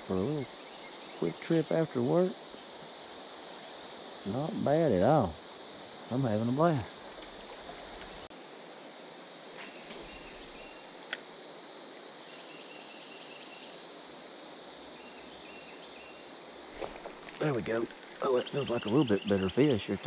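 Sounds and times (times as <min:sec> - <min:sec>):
faint chirping: 0:00.0 - 0:08.3, 0:09.6 - 0:11.0, 0:12.1 - 0:13.9, 0:14.8 - 0:20.0
cicada chorus drone: 0:00.0 - 0:20.0
sharp click: 0:11.1 - 0:11.3.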